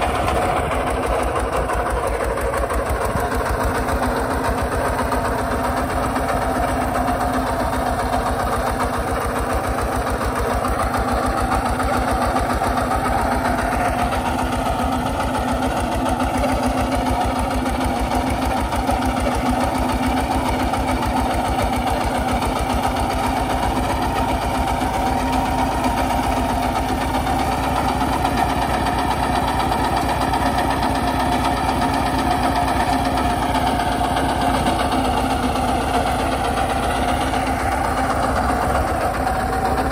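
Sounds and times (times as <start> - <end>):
diesel tractor engine running: 0.0 - 39.9.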